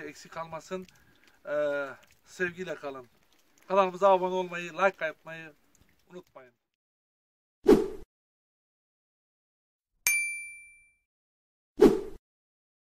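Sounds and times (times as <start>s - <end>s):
bright bell ding: 10.1s - 11.0s.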